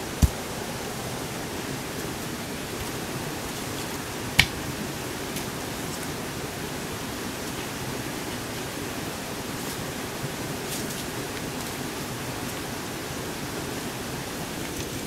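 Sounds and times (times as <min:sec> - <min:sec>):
steady hiss: 0:00.0 - 0:15.0
stone knocking against stone: 0:04.4 - 0:04.6.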